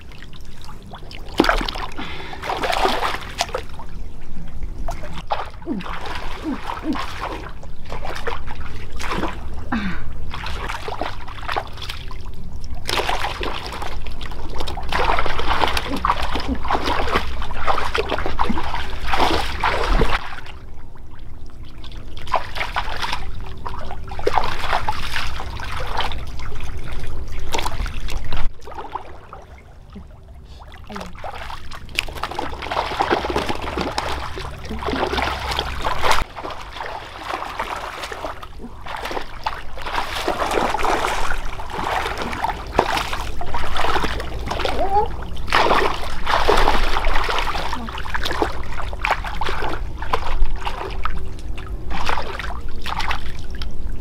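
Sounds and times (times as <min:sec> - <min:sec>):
low steady rumble: 0:00.0 - 0:54.0
water splashing and trickling: 0:00.0 - 0:54.0.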